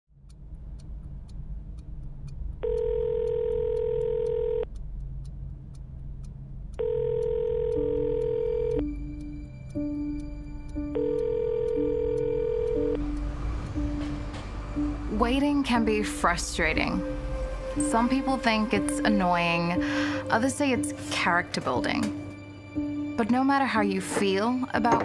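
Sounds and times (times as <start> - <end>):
gentle repeated notes: 0.3 - 25.0
telephone ringback tone: 2.6 - 4.6, 6.8 - 8.9, 10.9 - 13.0
soft background music: 6.7 - 25.0.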